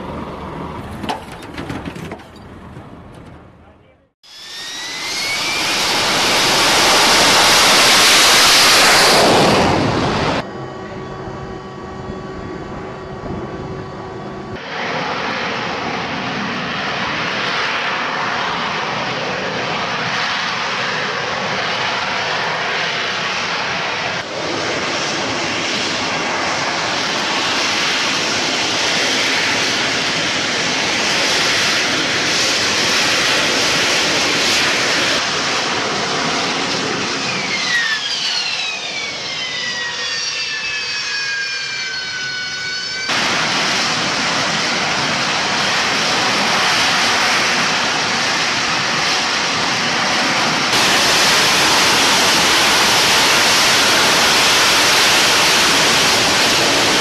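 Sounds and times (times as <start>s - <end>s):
loud jet engine roar: 0.0s - 57.0s
high whine falling in pitch: 4.2s - 16.2s, 36.6s - 57.0s.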